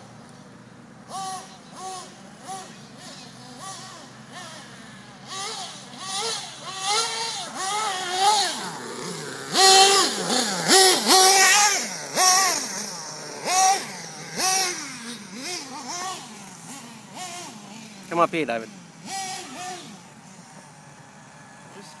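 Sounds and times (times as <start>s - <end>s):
small engine revving buzzily: 1.0s - 22.0s.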